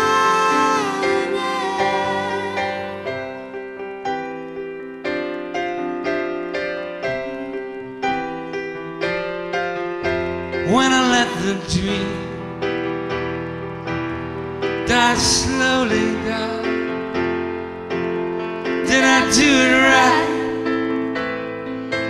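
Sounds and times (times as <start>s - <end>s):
woman singing: 0.0s - 3.0s
keyboard chords: 0.0s - 22.0s
voices singing: 18.9s - 20.6s.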